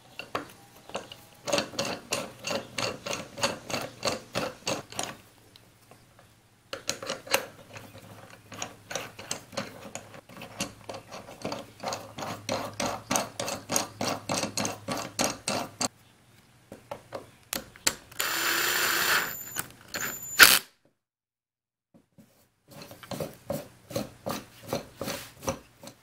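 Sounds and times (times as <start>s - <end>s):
cordless drill whining: 18.2s - 20.7s.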